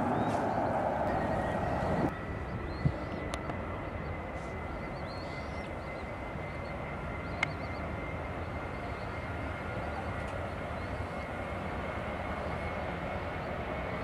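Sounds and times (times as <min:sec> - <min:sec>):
distant jet engines rumbling: 0:00.0 - 0:14.0
faint bird chirps: 0:01.1 - 0:11.4.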